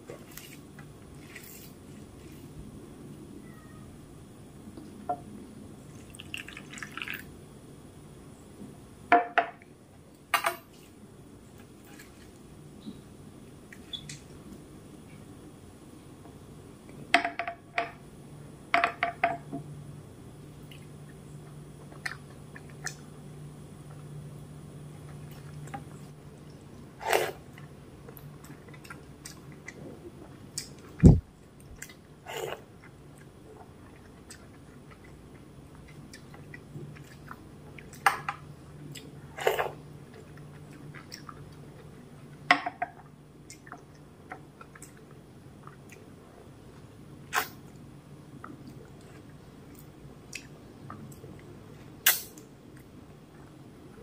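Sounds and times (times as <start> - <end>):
chewing: 31.7 - 38.0, 38.9 - 42.4.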